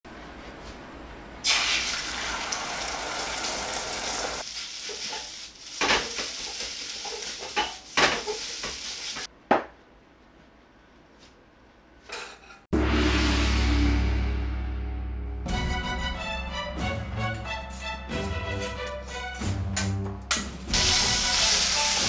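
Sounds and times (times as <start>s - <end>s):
food sizzling in a wok: 1.5s - 9.3s, 20.7s - 22.0s.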